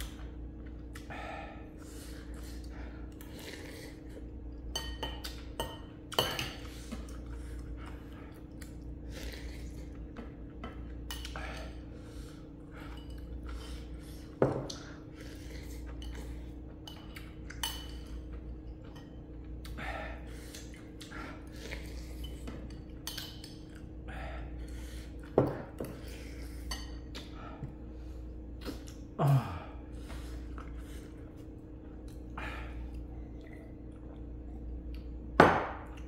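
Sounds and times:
steady low hum: 0.0 - 36.0
utensils clinking against bowl: 4.6 - 7.4, 14.4 - 19.4, 21.7 - 23.9.

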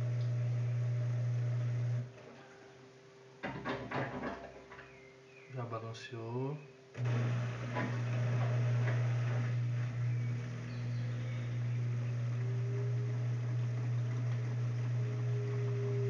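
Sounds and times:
washing machine motor hum: 0.0 - 2.5, 7.0 - 16.0
washing machine high whine: 0.0 - 2.6, 7.0 - 16.0.

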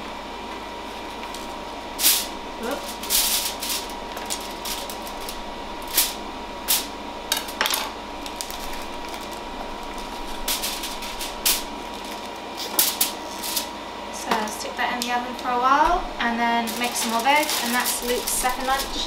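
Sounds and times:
plastic packaging rustling: 1.0 - 13.7, 16.6 - 19.0.

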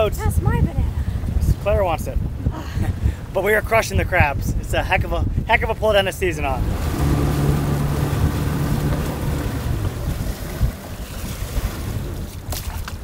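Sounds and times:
wind noise on microphone: 0.0 - 13.0
outboard motor humming: 6.4 - 13.0.

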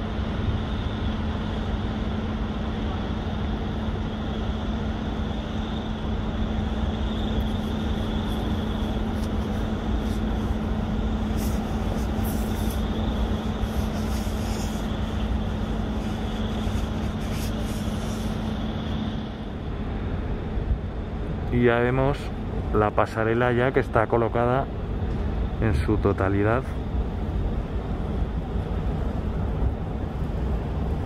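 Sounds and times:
engine rumble: 0.0 - 31.0.

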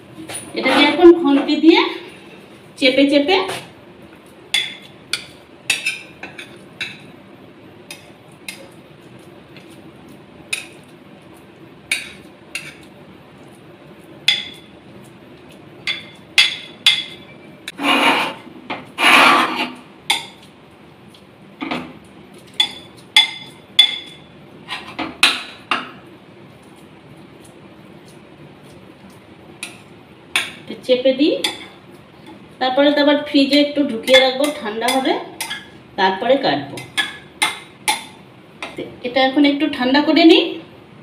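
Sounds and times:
spatula scraping pan: 0.6 - 1.5, 17.7 - 19.8.

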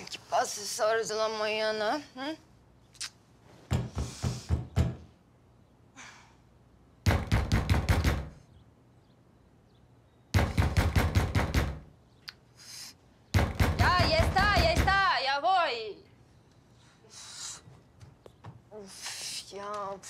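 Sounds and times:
knocking on a door: 3.7 - 5.1, 7.1 - 8.4, 10.4 - 11.9, 13.4 - 15.1.

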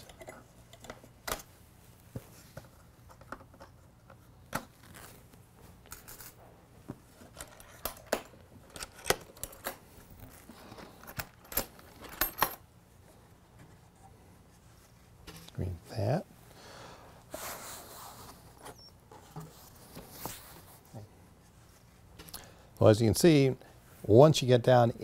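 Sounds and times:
metal pins clicking and clinking: 7.2 - 12.6.

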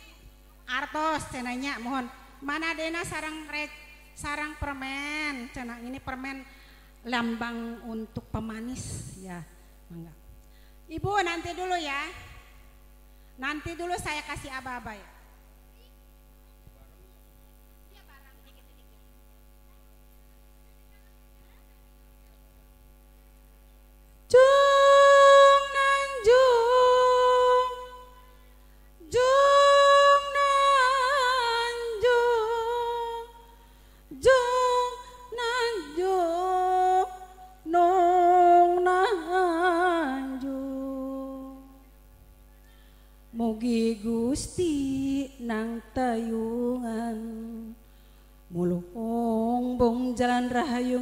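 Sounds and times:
faint electrical hum: 0.0 - 51.0
person singing unaccompanied chant: 24.3 - 28.2, 29.0 - 33.5, 34.1 - 41.8, 48.5 - 51.0.

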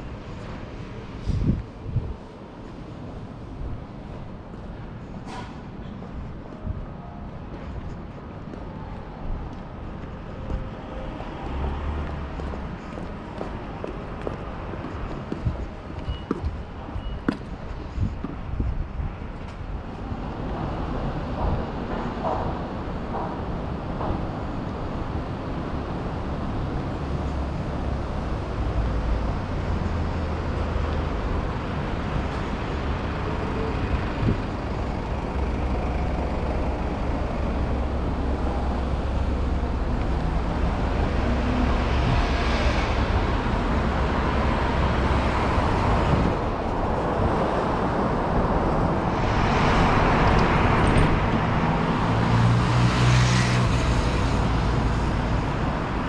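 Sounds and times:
cars driving past: 19.7 - 56.0.

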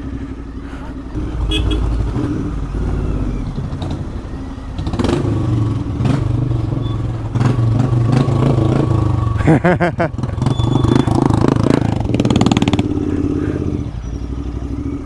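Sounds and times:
motorcycle engine revving: 0.0 - 15.0
knocks and rattles over bumps: 1.1 - 8.8.

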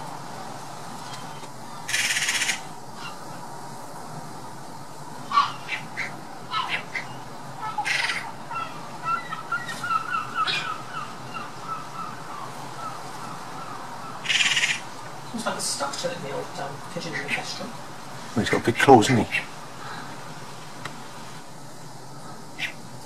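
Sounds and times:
magpies chattering: 1.1 - 3.4, 5.2 - 17.8, 18.4 - 20.1, 22.4 - 22.8
short high bird calls: 5.3 - 14.9.

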